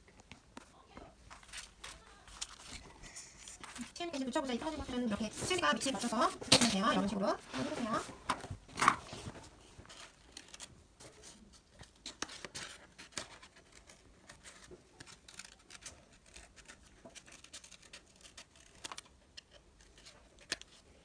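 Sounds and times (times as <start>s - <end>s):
paper rustling: 1.3s - 20.8s
scissors snipping paper: 11.9s - 20.7s.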